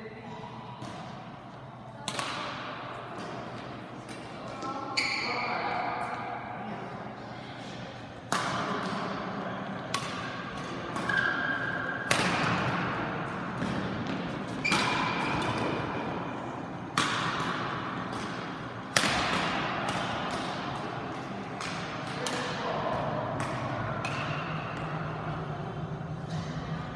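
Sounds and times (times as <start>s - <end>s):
rackets striking shuttlecock: 2.0s - 4.4s, 8.3s - 9.2s, 9.9s - 25.3s.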